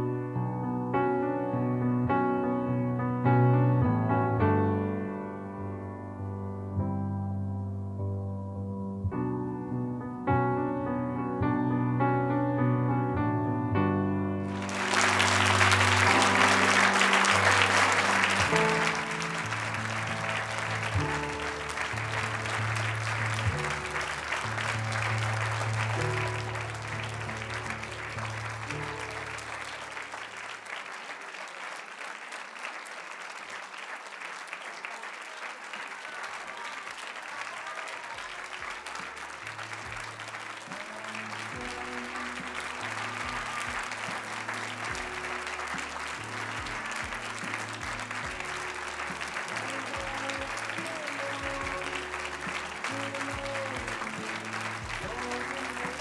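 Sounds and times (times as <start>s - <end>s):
recorded music: 0.0s - 30.4s, 38.3s - 56.0s
audience applauding: 14.4s - 56.0s.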